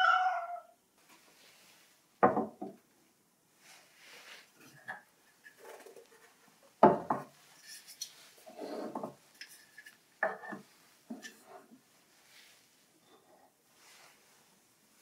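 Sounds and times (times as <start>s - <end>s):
wooden objects knocking on shelf: 2.2s - 2.8s, 6.8s - 7.3s.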